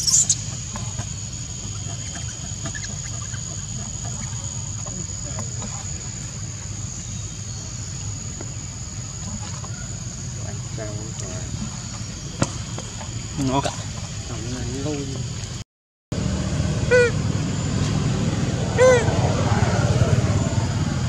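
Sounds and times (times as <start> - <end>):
insects droning: 0.0 - 15.6, 16.2 - 21.0
low rumble: 16.1 - 21.0.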